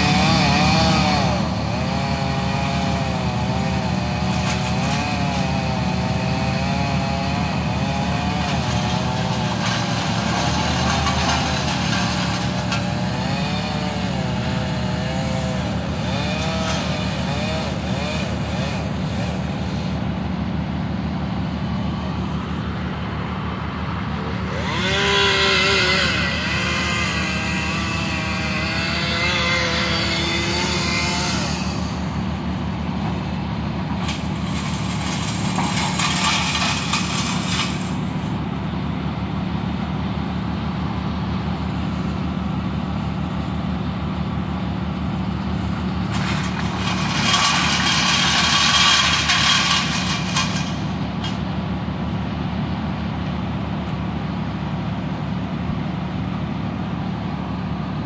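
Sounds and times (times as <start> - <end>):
chainsaw revving: 0.0 - 20.0, 24.2 - 32.4, 34.0 - 38.3, 46.0 - 51.4
truck engine running: 0.0 - 58.0.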